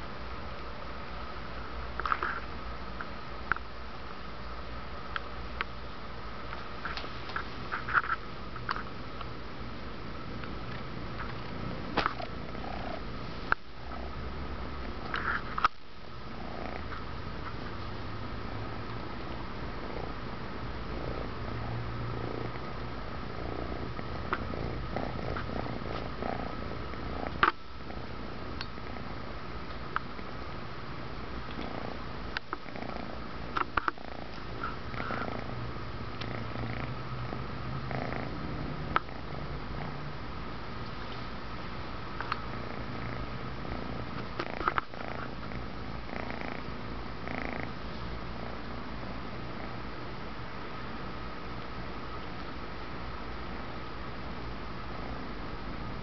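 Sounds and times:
kitten purring: 0:10.4 - 0:30.4, 0:31.3 - 0:50.0, 0:54.8 - 0:56.0.

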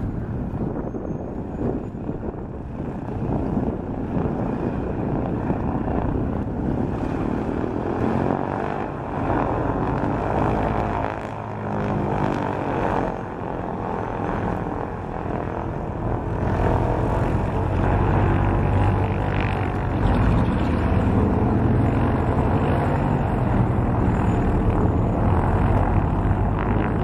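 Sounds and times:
aircraft engines and propellers droning: 0:00.0 - 0:27.0
aircraft taxiing close past: 0:00.0 - 0:27.0.

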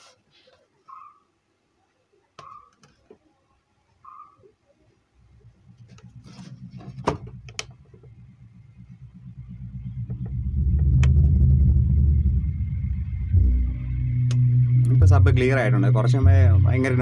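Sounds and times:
subwoofer pulsing bass: 0:05.2 - 0:17.0.

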